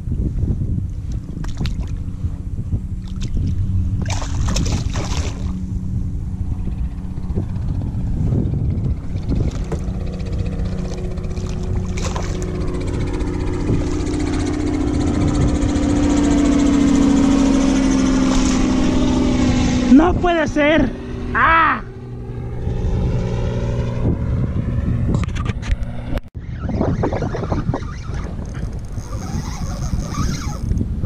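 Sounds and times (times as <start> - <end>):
motorboat engine running: 0.0 - 31.0
rumble of wind and water: 0.0 - 31.0
water splash: 3.0 - 5.6, 11.3 - 12.5.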